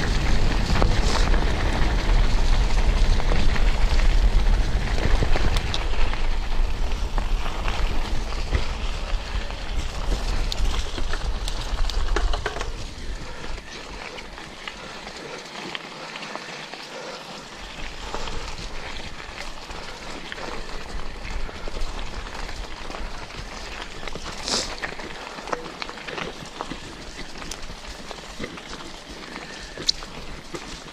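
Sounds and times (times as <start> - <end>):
wind rumble on microphone: 0.0 - 14.4
bicycle clicks and rattles: 0.0 - 30.9
bicycle tyres crunching on gravel: 0.0 - 30.9.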